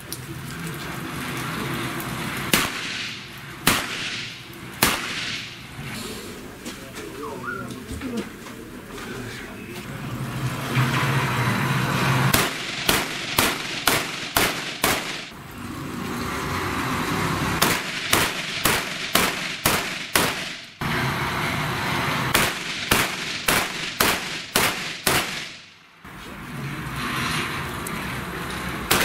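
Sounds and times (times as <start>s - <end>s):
pistol shots: 2.5s - 5.6s, 12.3s - 15.3s, 17.6s - 20.7s, 22.3s - 25.7s.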